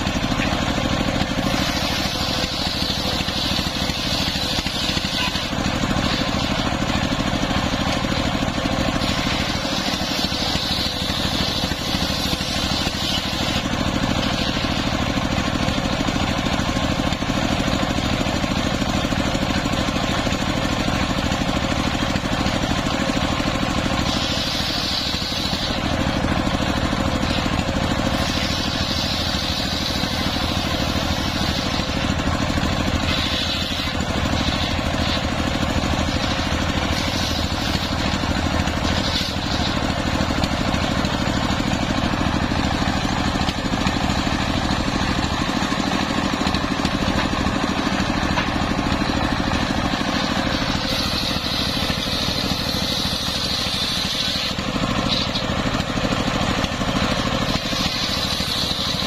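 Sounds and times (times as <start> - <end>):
saw blade cutting wood hiss: 0.0 - 7.9, 8.7 - 15.2, 23.8 - 41.8, 50.0 - 55.5, 57.4 - 59.0
saw engine running: 0.0 - 59.0.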